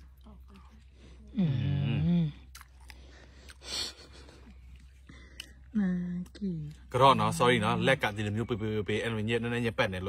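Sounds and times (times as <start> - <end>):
wet chewing mouth clicks: 2.3 - 6.4.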